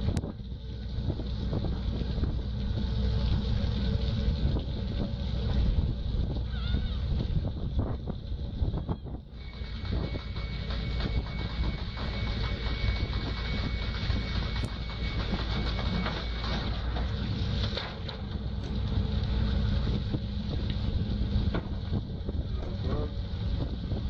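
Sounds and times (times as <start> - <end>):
boat engine rumble: 0.0 - 24.0
thin high whine: 8.6 - 17.9
knocks and clatter: 9.4 - 18.8, 21.5 - 22.0.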